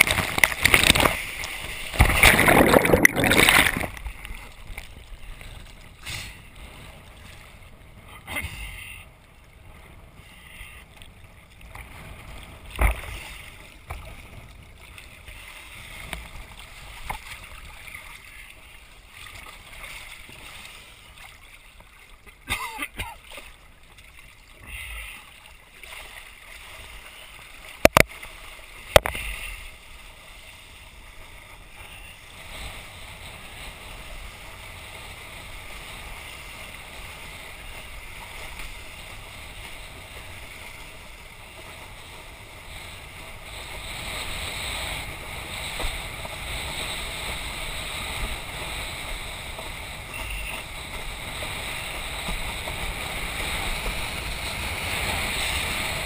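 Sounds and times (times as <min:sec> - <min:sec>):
wind and water rushing: 0:00.0 - 0:56.0.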